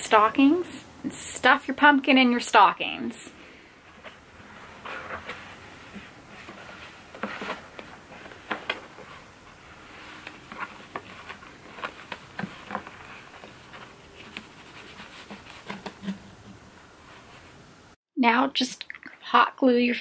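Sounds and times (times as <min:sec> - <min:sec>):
fabric rustling and scratching: 0:03.8 - 0:17.7.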